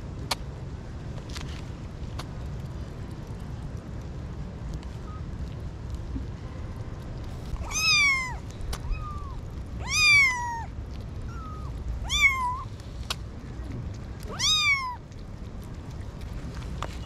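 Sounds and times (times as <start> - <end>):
kittens meowing: 7.6 - 12.7, 14.3 - 15.0.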